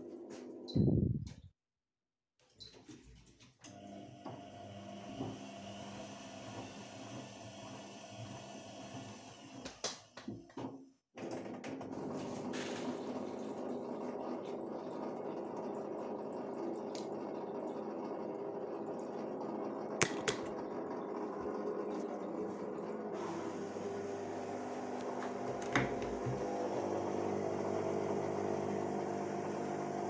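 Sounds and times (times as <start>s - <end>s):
washing machine churning water: 3.7s - 9.7s, 11.2s - 30.0s.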